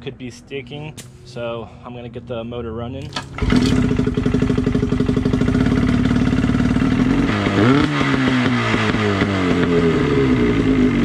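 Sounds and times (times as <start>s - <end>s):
outboard motor running: 3.3s - 7.8s.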